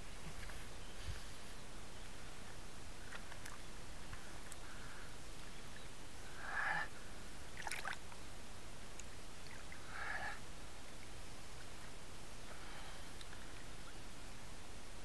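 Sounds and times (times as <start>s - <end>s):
shallow water sloshing and gurgling: 7.5s - 8.2s.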